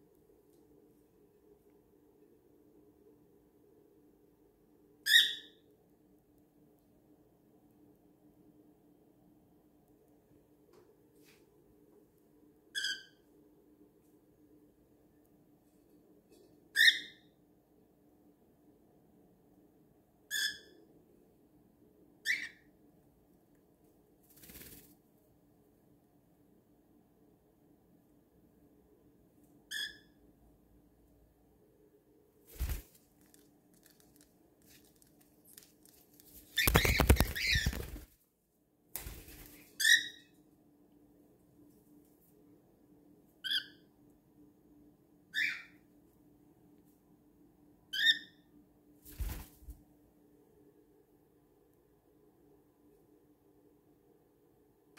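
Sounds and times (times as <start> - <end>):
cockatiel chirping: 5.1 - 5.6, 16.8 - 17.3, 22.3 - 22.6, 29.7 - 30.1, 39.8 - 40.3, 43.4 - 43.8, 45.3 - 45.8, 47.9 - 48.4.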